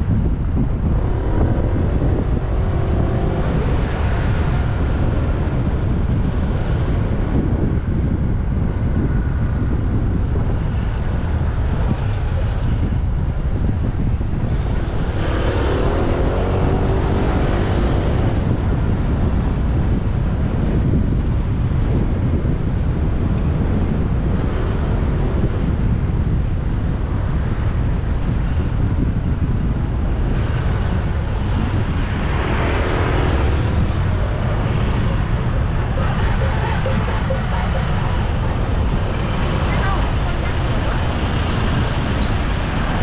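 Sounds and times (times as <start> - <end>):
traffic of cars and motorbikes: 0.0 - 43.0
wind rumbling on microphone: 0.0 - 43.0.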